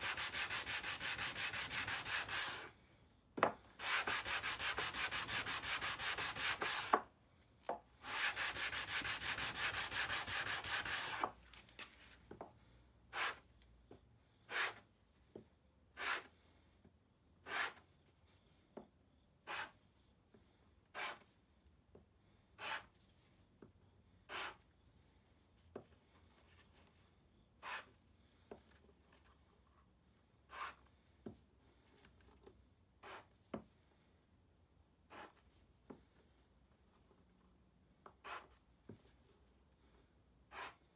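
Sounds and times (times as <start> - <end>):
wood sanding on sandpaper: 0.0 - 2.7, 3.8 - 7.0, 8.0 - 11.3, 13.1 - 13.4, 14.5 - 14.8, 16.0 - 16.3, 17.4 - 17.8, 30.5 - 30.8.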